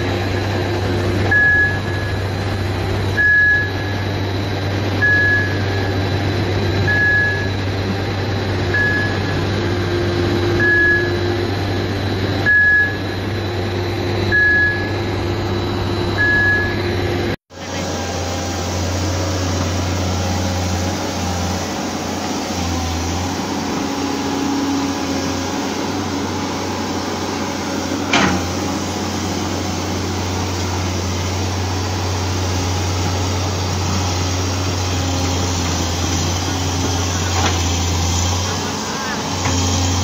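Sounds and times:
excavator diesel engine running: 0:00.0 - 0:40.0.

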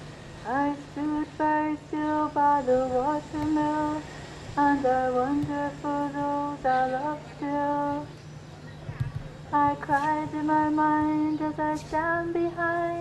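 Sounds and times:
woman singing unaccompanied: 0:00.4 - 0:08.2, 0:09.4 - 0:13.0.

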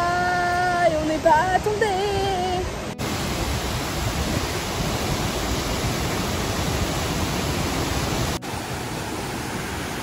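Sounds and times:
waterfall rushing: 0:01.6 - 0:10.0.

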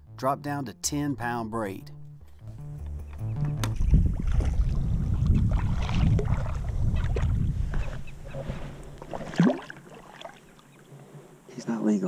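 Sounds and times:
wind rumbling on microphone: 0:03.4 - 0:09.4
water splashing around kayak: 0:03.8 - 0:11.5.

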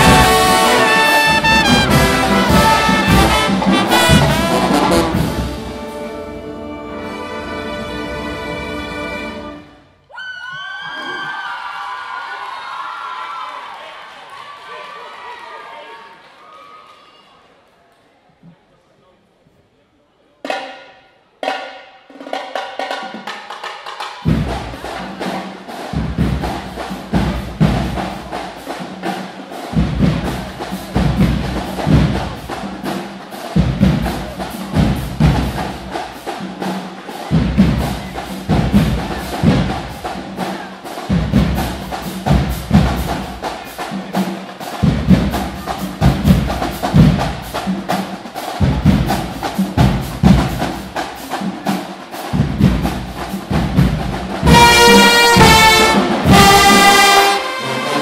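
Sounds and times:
snare drum strokes: 0:00.0 - 0:06.2, 0:20.5 - 0:58.0
bass drum hits: 0:01.3 - 0:05.7.

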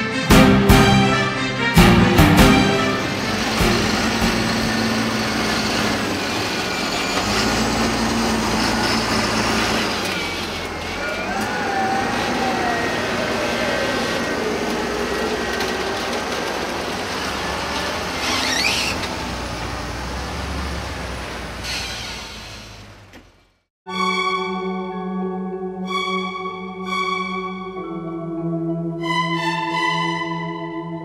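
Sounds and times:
tractor engine under load: 0:01.9 - 0:23.7.

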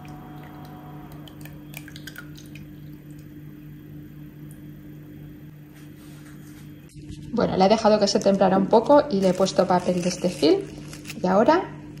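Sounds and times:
steady low hum: 0:00.0 - 0:12.0
thick liquid dripping and splatting: 0:01.2 - 0:03.3.

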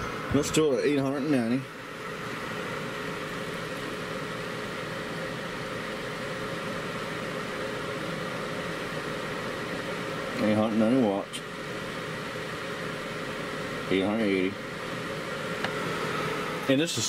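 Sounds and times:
electric fan whir: 0:00.0 - 0:17.0
thin electrical hum: 0:00.0 - 0:17.0.

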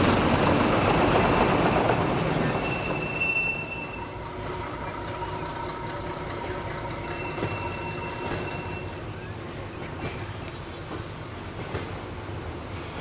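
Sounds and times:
distant diesel locomotive engine: 0:00.0 - 0:13.0.

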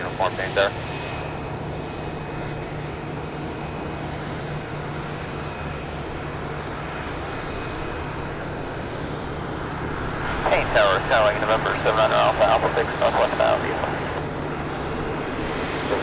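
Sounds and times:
jet engines rumbling: 0:00.0 - 0:16.0
faint high engine tone: 0:07.8 - 0:16.0.

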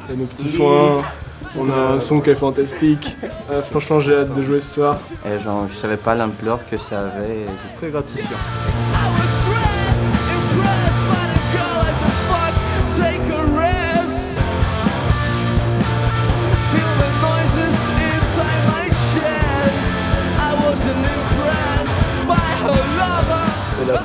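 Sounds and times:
rock band playing live: 0:08.3 - 0:24.0.

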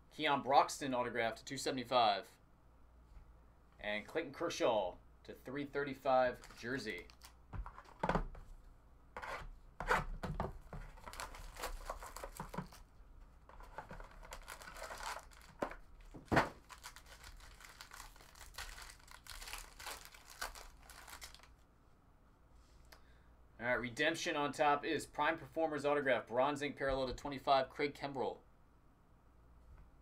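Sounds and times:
wrapper crumpling: 0:06.3 - 0:07.4, 0:11.0 - 0:12.8, 0:13.6 - 0:21.6
card pack wrapper tearing: 0:06.4 - 0:07.4, 0:11.0 - 0:12.8, 0:13.6 - 0:15.8, 0:16.6 - 0:21.6.

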